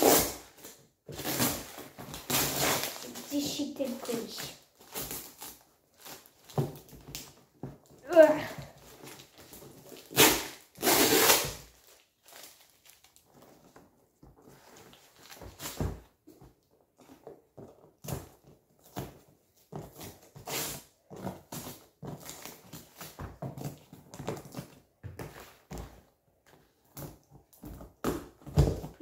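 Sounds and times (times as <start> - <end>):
cardboard ripping: 0.0 - 4.2, 8.1 - 13.2
rustling of packing paper: 11.6 - 15.8.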